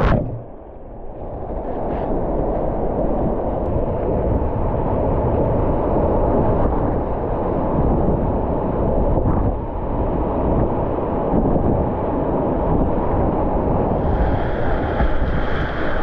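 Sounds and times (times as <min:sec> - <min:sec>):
river water churning: 0:14.0 - 0:16.0.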